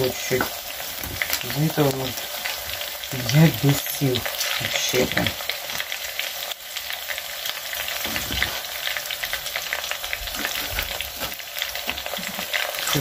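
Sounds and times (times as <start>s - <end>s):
chicken wings sizzling in oil: 0.0s - 13.0s.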